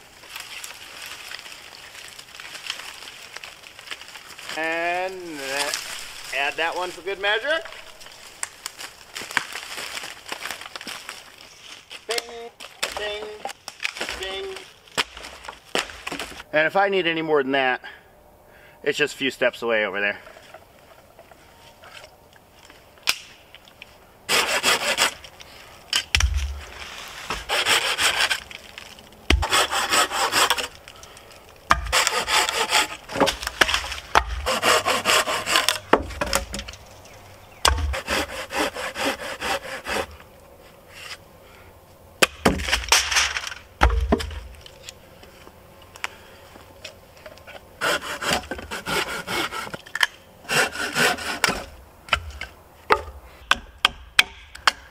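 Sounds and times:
logs thumping: 12.0s - 16.4s, 25.9s - 40.3s, 42.2s - 44.8s, 47.8s - 54.9s
rasping strokes on wood: 24.3s - 25.2s, 27.3s - 28.4s, 29.3s - 30.7s, 31.7s - 33.2s, 34.1s - 36.2s, 37.7s - 40.2s, 47.8s - 49.8s, 50.5s - 51.7s
knife scraping a stick: 24.3s - 25.3s, 26.5s - 30.8s, 31.7s - 36.8s, 37.6s - 41.2s, 47.4s - 51.8s.

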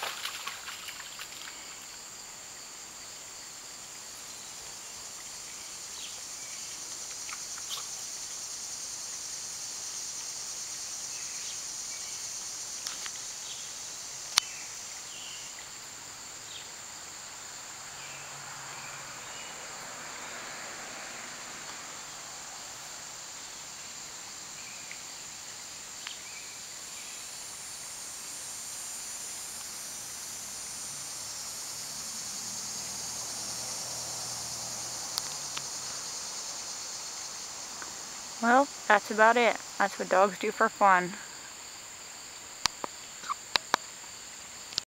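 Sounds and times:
insects chirring: 0.0s - 44.9s.

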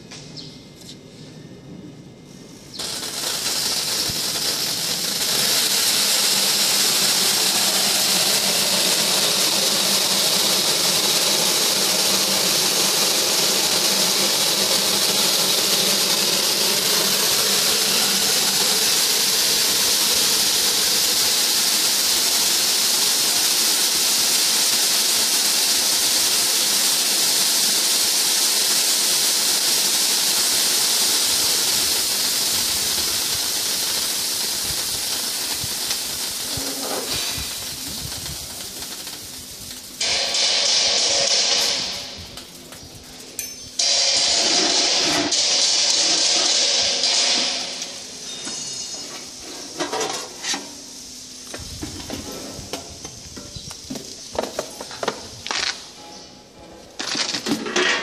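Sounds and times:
sorting machine airy hiss: 0.0s - 58.0s.

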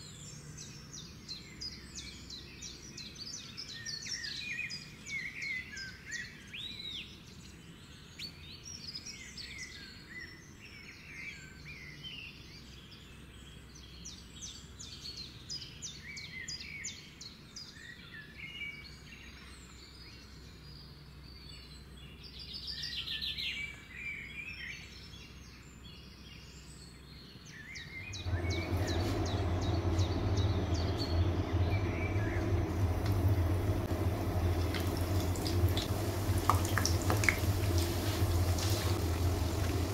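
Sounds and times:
birds chirping: 27.8s - 39.9s
steady low hum: 28.0s - 39.9s
bread frying in hot oil: 28.3s - 39.9s.

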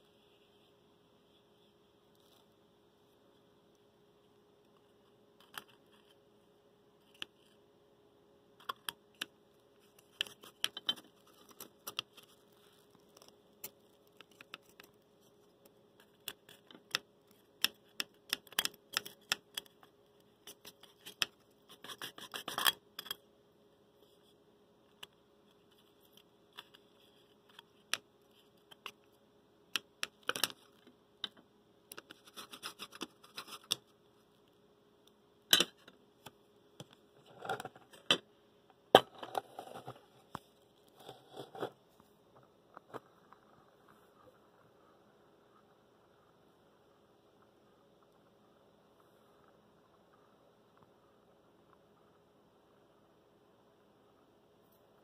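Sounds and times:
clicks and scrapes of handled parts: 8.6s - 23.2s, 35.5s - 38.2s.

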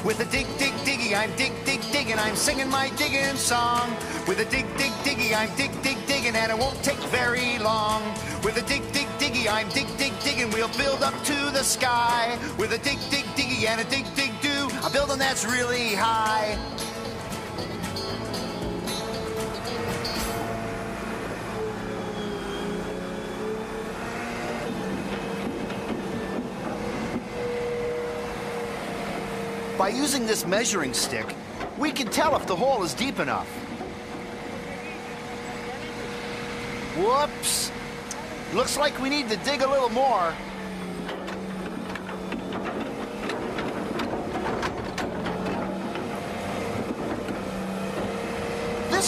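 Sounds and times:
excavator engine drone: 0.0s - 49.0s
bucket clanking and scraping: 40.5s - 49.0s.

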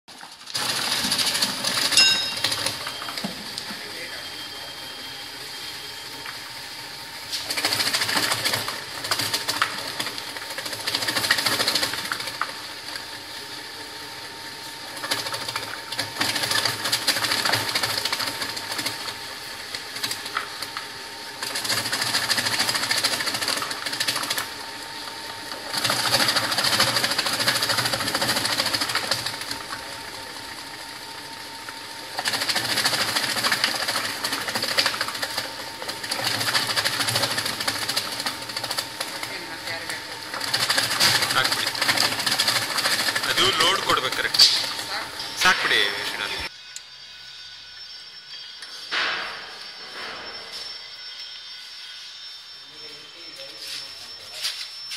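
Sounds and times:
machine humming: 0.5s - 54.9s
machine clattering while slicing: 40.5s - 44.7s.

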